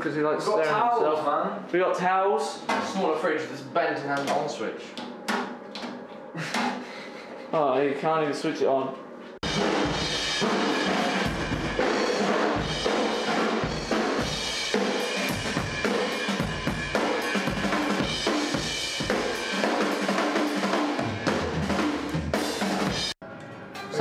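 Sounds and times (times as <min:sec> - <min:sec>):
drum kit played hard: 0:09.4 - 0:23.2.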